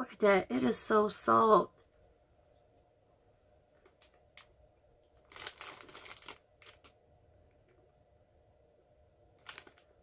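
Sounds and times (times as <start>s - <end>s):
food wrapper crackling: 3.8s - 7.0s, 9.3s - 10.0s.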